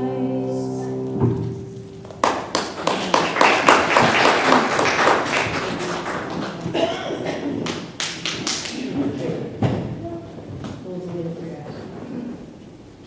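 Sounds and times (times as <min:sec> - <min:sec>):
congregation applauding: 0:02.0 - 0:09.1.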